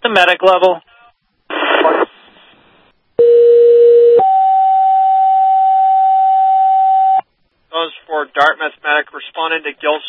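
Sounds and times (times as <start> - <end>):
radio hiss: 1.5 - 3.0.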